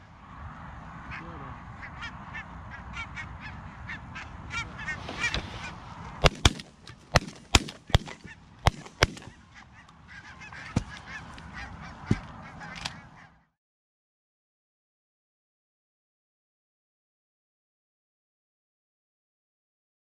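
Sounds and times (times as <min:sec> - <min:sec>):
geese honking: 0:01.0 - 0:13.6
shotgun shots: 0:06.2 - 0:09.4.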